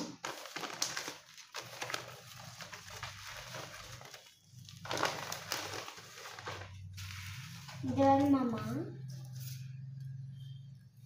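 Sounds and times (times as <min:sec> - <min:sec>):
newspaper rustling and crumpling: 0:00.0 - 0:08.0.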